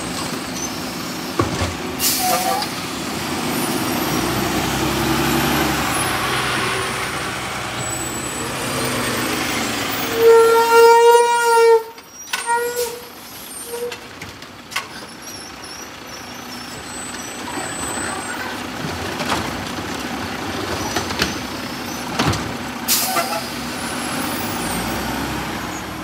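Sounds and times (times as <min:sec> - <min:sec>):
garbage truck engine under load: 0:00.0 - 0:26.0
knocks and rattles of cart: 0:01.3 - 0:02.8, 0:13.8 - 0:16.0, 0:16.6 - 0:22.8.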